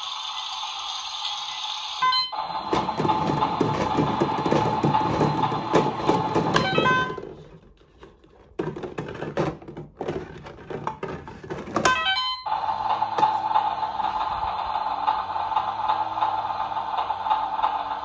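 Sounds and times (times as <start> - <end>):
toy electronic beeps: 2.0 - 2.5, 6.5 - 7.4, 11.8 - 12.6
plastic balls rattling: 2.7 - 12.1.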